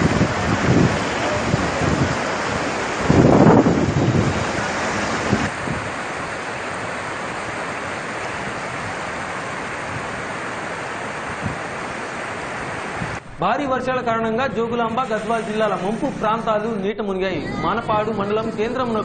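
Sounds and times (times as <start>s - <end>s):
floodwater rushing: 0.0s - 13.4s.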